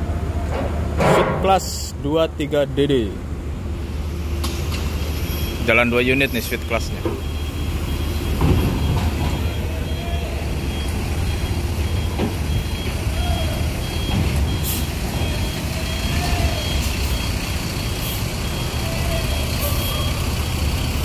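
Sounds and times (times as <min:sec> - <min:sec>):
diesel bus engine running: 0:00.0 - 0:01.0, 0:01.6 - 0:21.0
electronic beeper: 0:05.3 - 0:20.3.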